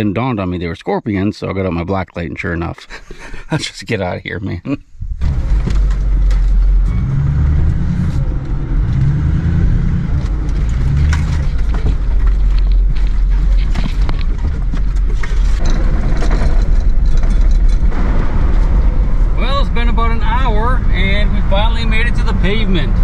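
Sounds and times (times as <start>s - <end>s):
truck engine and road rumble: 0.0s - 23.0s
rattles and knocks over bumps: 5.0s - 9.1s, 10.1s - 19.6s.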